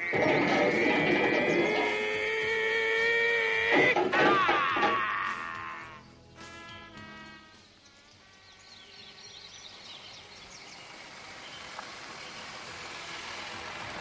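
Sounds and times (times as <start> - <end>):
birds chirping: 0.0 - 3.1, 5.8 - 14.0
music: 0.0 - 10.8.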